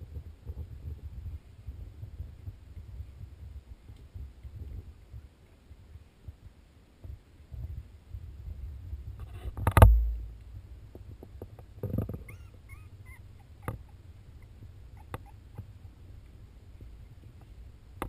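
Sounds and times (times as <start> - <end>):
loud thump: 9.6 - 10.3
puppies squeaking and whimpering: 12.1 - 15.9.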